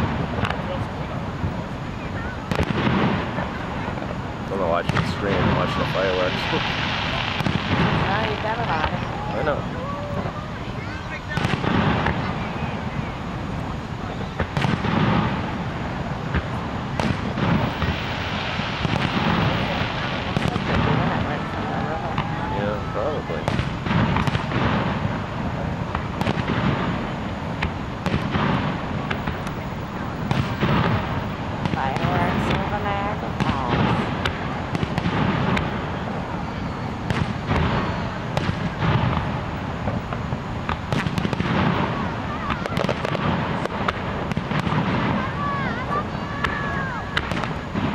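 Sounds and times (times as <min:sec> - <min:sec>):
fireworks bursting with sharp bangs: 0:00.0 - 0:47.9
steady rushing background noise: 0:00.0 - 0:47.9.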